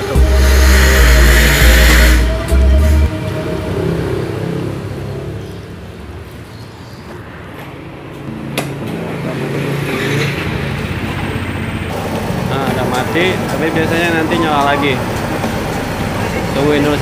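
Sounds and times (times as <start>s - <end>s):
scooter engine idling: 10.7s - 17.0s.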